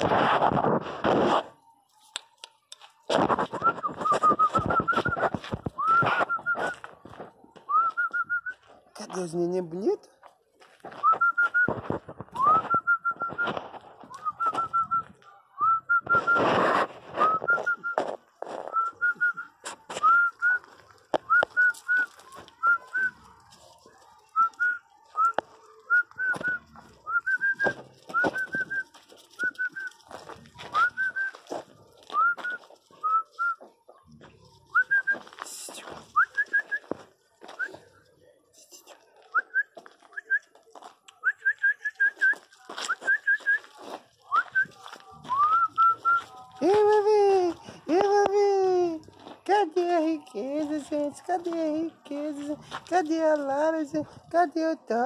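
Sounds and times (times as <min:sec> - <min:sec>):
rough noise: 0:00.0 - 0:01.6.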